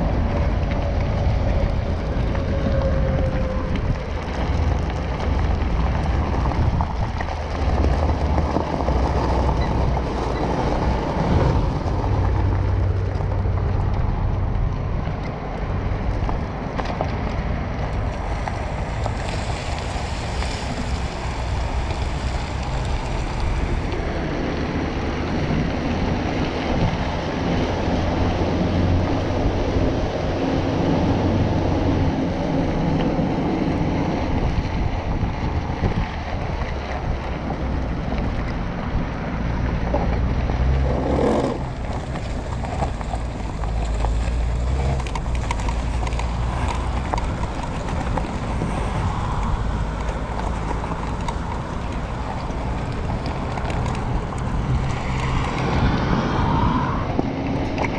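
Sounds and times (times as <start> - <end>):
wind buffeting microphone: 0.0 - 57.9
tyre rumble on gravel: 40.1 - 56.2.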